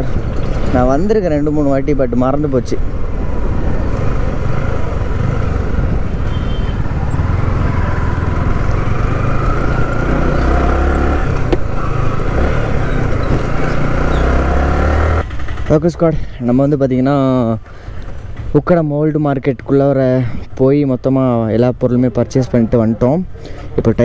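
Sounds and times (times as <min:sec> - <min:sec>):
motorcycle engine rumbling: 0:00.0 - 0:18.6
road noise: 0:00.0 - 0:24.0.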